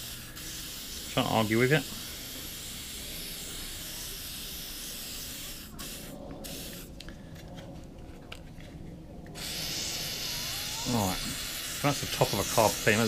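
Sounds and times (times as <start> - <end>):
aerosol spray can hissing: 0.0 - 1.2, 1.8 - 6.9, 9.4 - 13.0.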